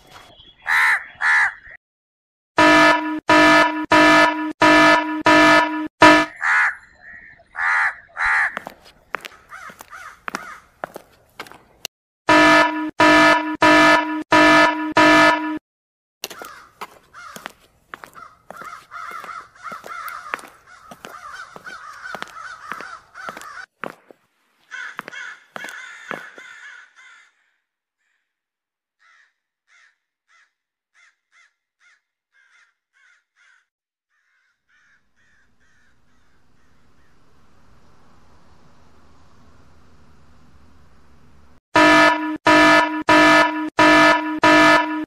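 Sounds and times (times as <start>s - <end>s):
crows cawing: 0.7s - 1.8s, 6.3s - 10.8s, 16.3s - 23.7s, 24.6s - 28.3s, 29.0s - 37.1s.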